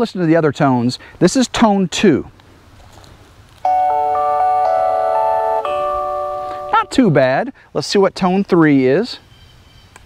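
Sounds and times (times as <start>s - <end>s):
alarm chime melody: 3.7s - 7.2s.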